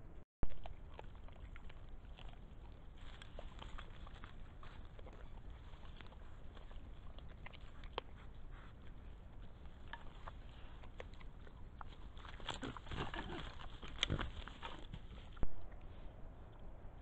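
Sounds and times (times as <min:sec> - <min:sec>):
rustling and snuffling: 0:00.6 - 0:16.5
faint ticks and rustles: 0:00.6 - 0:16.7.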